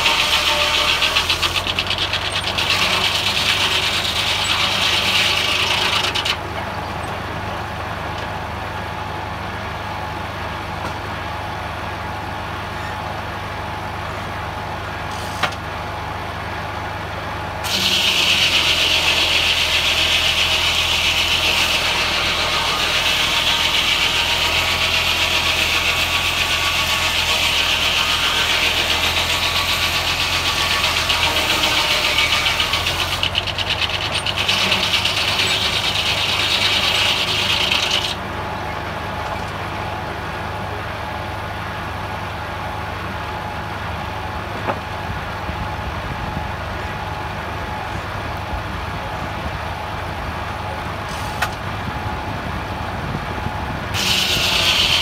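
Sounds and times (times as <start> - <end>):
saw blade rasping through log: 0.0 - 6.4, 17.6 - 38.2, 54.0 - 55.0
sawmill engine hum: 0.0 - 55.0.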